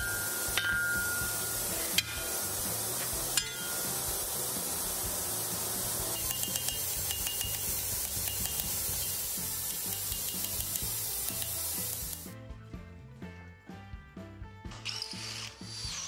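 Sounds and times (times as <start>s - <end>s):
hammer blows on anvil: 0.0s - 4.5s
steady hiss: 0.0s - 12.3s.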